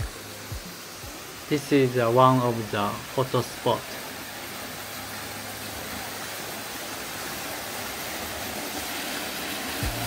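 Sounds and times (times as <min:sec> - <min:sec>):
waterfall splashing into a pool: 0:00.0 - 0:10.0.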